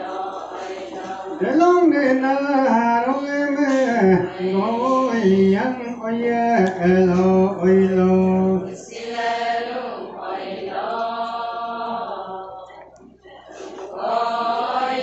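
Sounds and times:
women chanting in chorus: 0:00.0 - 0:01.5, 0:08.7 - 0:15.0
person singing long notes: 0:01.3 - 0:08.7.

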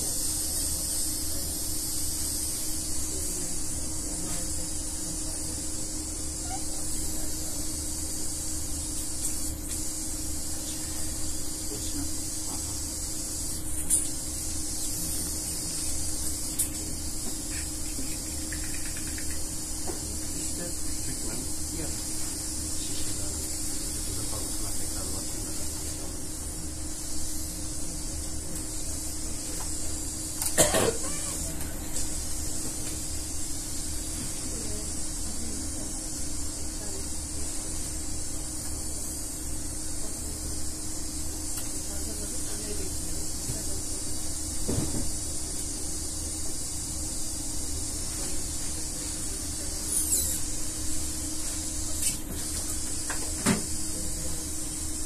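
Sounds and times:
low constant hum: 0:00.0 - 0:44.4
steady hiss: 0:00.0 - 0:55.0
person coughing: 0:30.5 - 0:31.3.

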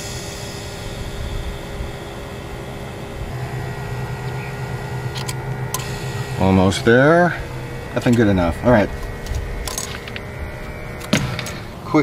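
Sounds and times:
air compressor hum and hiss: 0:00.0 - 0:12.0
truck engine idling: 0:00.0 - 0:12.0.

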